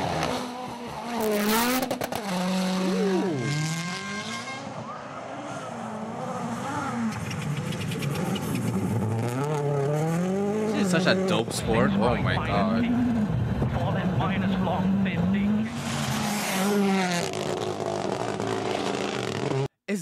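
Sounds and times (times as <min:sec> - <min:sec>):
rally car engines at full throttle: 0:00.0 - 0:19.7
engine pops and crackles: 0:07.1 - 0:09.0.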